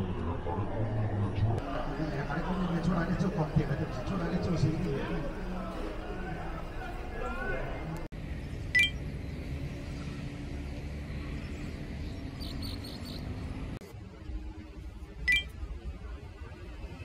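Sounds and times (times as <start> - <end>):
low city rumble: 0.0 - 17.0
high chirps: 8.8 - 9.0, 15.3 - 15.5.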